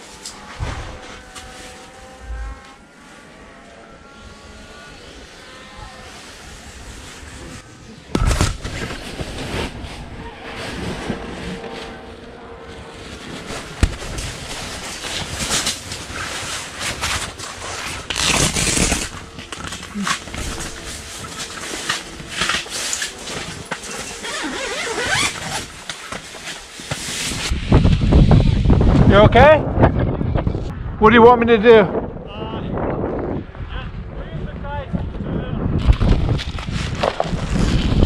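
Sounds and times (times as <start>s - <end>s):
fabric rustling and scraping: 0.0s - 3.6s, 6.0s - 27.6s, 35.8s - 38.0s.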